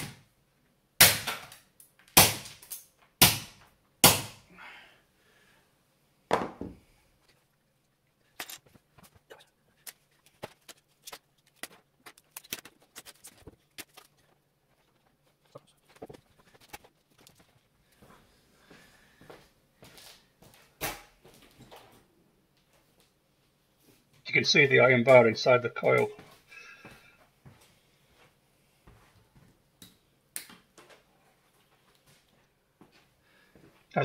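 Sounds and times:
hammer blows cracking plastic: 1.0s - 4.4s.

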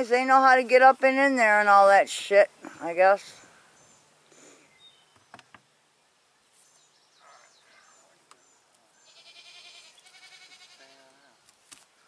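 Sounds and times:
goat bleating: 9.0s - 11.4s.

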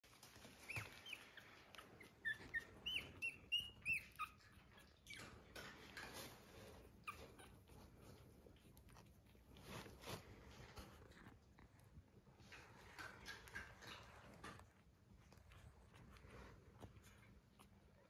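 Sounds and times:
soft rustling: 0.0s - 18.0s
puppies squeaking and whimpering: 0.1s - 10.0s.

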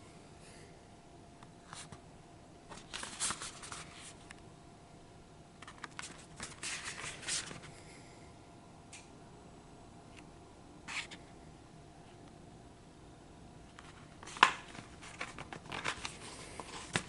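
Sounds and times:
dvd case rustling and clicking: 13.7s - 17.0s.

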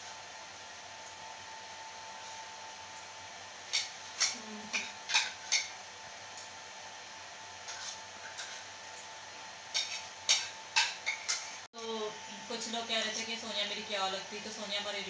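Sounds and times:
spoons clinking on ceramic plates: 9.7s - 11.6s.

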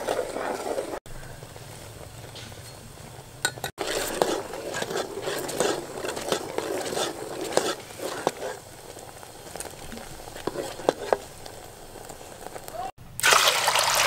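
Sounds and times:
wooden spoon stirring in pot: 0.0s - 1.0s, 3.5s - 12.9s.

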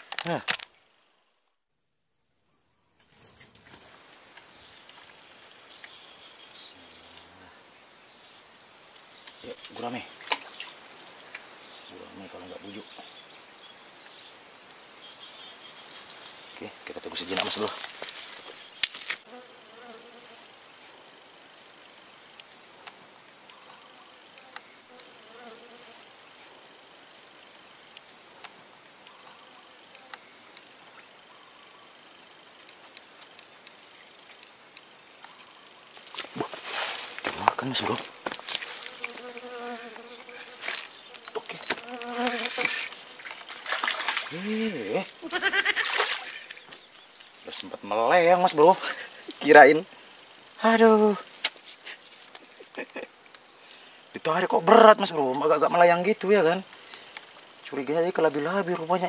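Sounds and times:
insects droning: 2.8s - 59.0s
high-pitched insect trilling: 35.4s - 49.9s.

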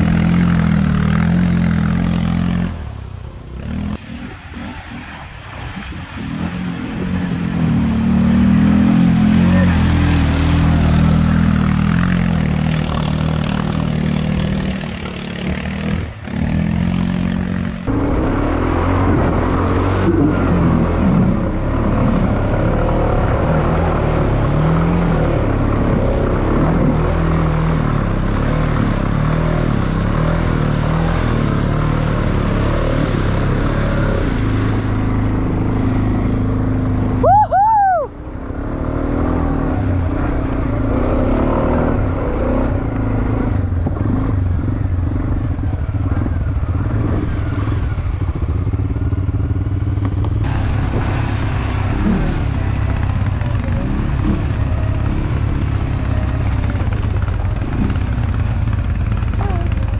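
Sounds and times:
quad engines revving in mud: 0.0s - 59.9s.

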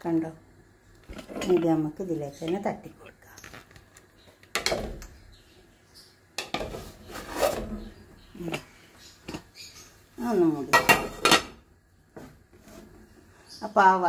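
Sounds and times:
pot and lid clattering: 4.5s - 5.2s, 6.4s - 7.7s, 10.7s - 11.6s
lid clanking on pot: 10.7s - 11.6s.

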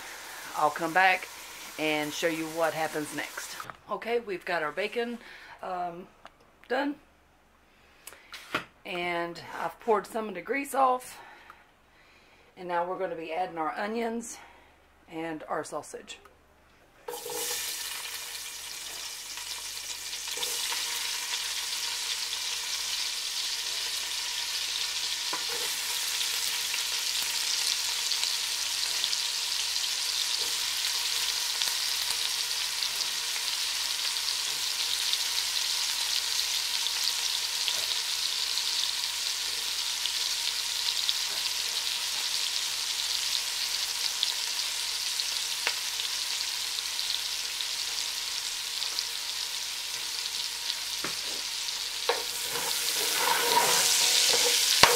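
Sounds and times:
onions sizzling in grease: 0.0s - 3.7s, 17.1s - 54.9s.

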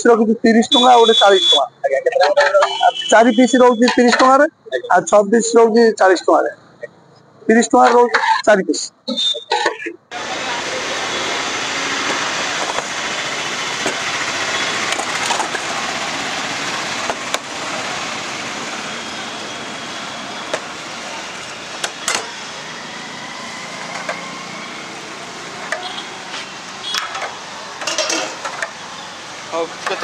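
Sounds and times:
traffic hum: 0.0s - 30.0s
steel bowls clinking on counter: 27.8s - 28.5s.

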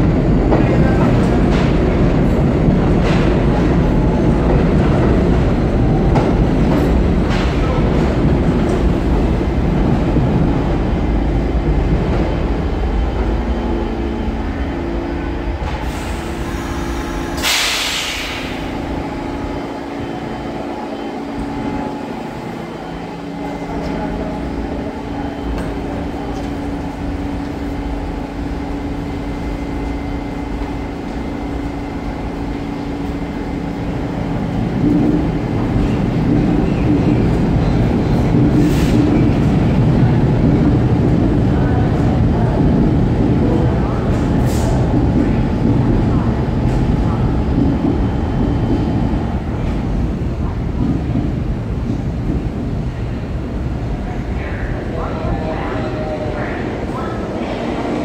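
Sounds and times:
subway train rumble: 0.0s - 58.0s
train standing hum: 0.0s - 58.0s
air hiss burst: 15.8s - 18.7s.

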